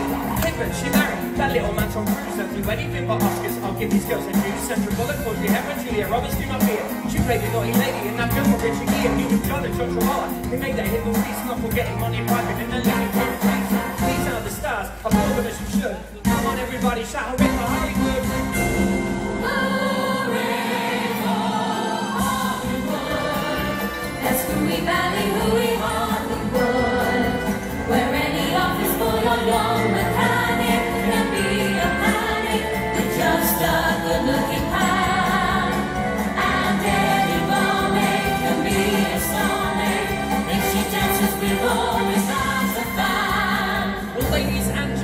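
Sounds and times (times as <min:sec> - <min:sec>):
choir singing: 0:00.0 - 0:11.3, 0:17.4 - 0:44.3
upbeat stage-show music: 0:00.0 - 0:45.0.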